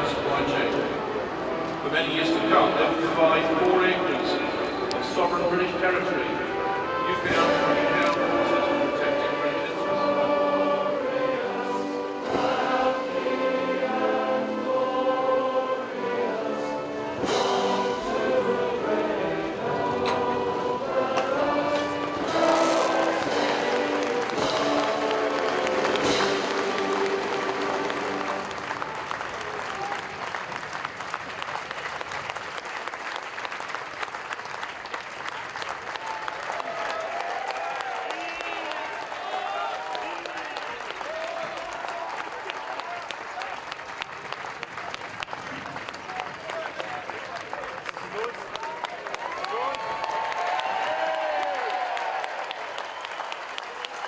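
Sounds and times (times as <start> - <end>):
crowd singing in chorus: 7.2 - 28.7
crowd applauding: 22.2 - 54.0.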